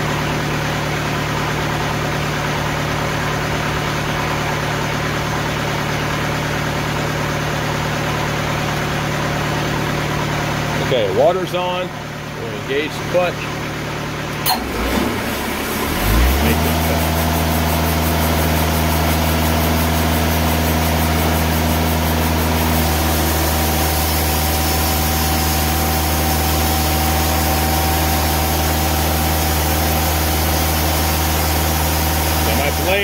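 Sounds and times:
sawmill engine running: 0.0 - 33.0
band saw blade cutting log: 15.9 - 33.0.

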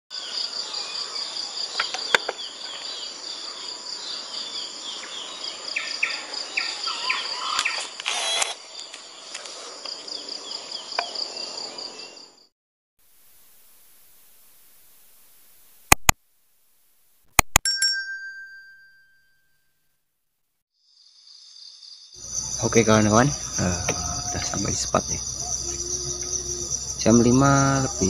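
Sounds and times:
birds chirping: 0.2 - 8.0, 22.2 - 28.0
pulsing insect chorus: 0.2 - 12.5, 20.8 - 28.0
sharp click: 15.9 - 16.2, 17.4 - 17.6.

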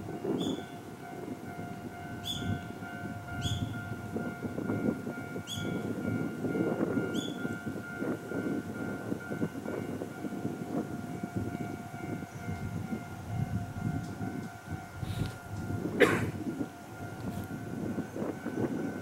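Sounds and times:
level-crossing alarm: 0.0 - 19.0.

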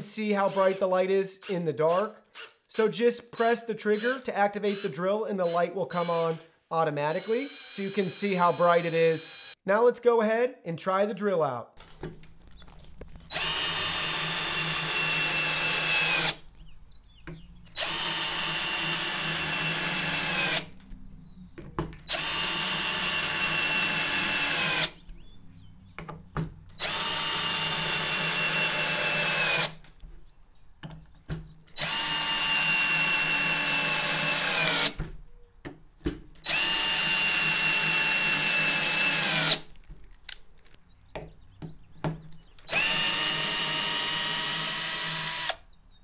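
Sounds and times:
cordless drill driving screws: 0.4 - 2.6, 3.4 - 6.4, 7.1 - 9.5, 11.8 - 16.6, 17.6 - 20.8, 22.0 - 25.0, 26.7 - 29.9, 31.7 - 35.0, 36.4 - 39.8, 42.6 - 45.6.

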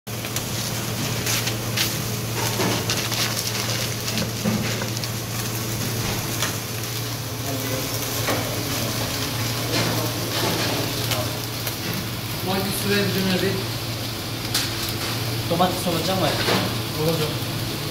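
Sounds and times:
food sizzling: 0.1 - 17.9
low hum and hiss: 0.1 - 17.9
metal utensils and pans clattering: 2.3 - 5.0, 9.7 - 11.2, 16.2 - 16.8.

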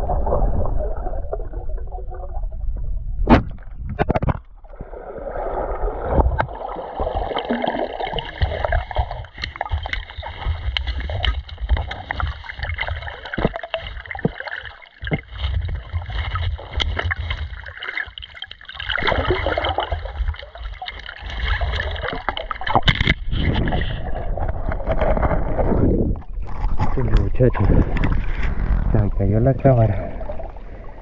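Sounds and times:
water sloshing and gurgling: 0.0 - 31.0
clicks and knocks: 3.3 - 4.5, 22.2 - 23.6.

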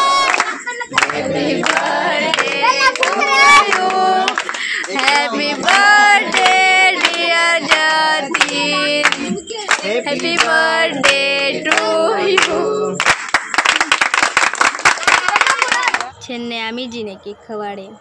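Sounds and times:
voices singing: 0.0 - 13.1
hands clapping: 0.1 - 16.1.

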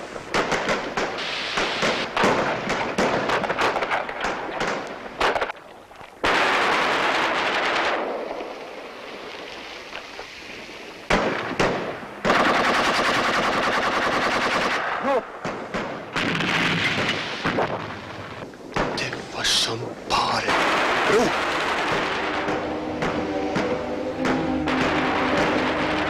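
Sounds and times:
loud steady hissing: 0.0 - 2.9, 16.0 - 26.0
rapid gunfire: 11.1 - 14.9, 20.4 - 23.2.

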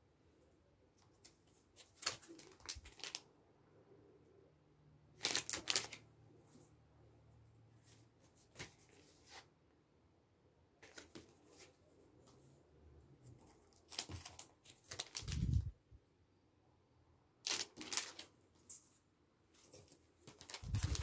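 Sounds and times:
cardboard sleeves rustling and sliding: 19.6 - 21.0.

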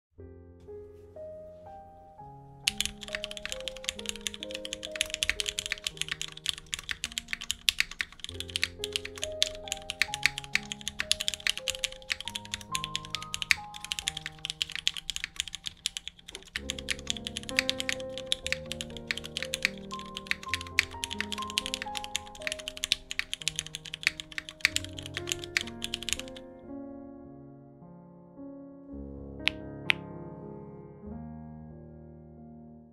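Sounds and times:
soft background music: 0.2 - 27.7
mechanical keyboard typing: 2.7 - 26.4.

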